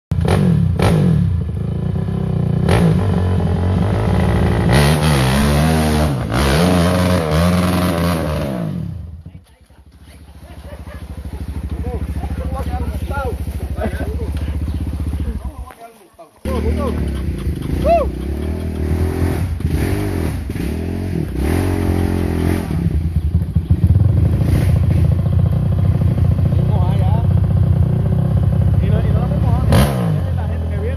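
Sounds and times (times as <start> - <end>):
dirt bike engine revving: 0.1 - 9.3, 9.9 - 15.7, 16.4 - 30.9.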